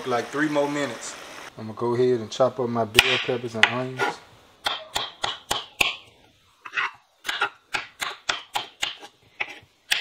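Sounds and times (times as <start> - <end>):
knife chopping on wooden board: 7.3 - 10.0.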